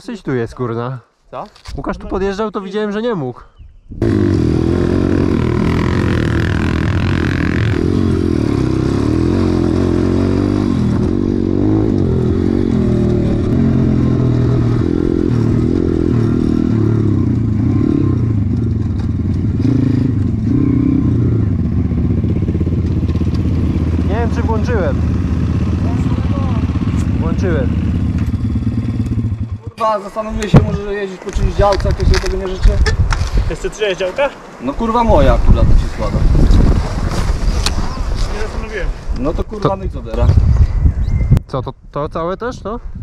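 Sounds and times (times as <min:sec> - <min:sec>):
dirt bike engine revving: 0:04.0 - 0:29.7.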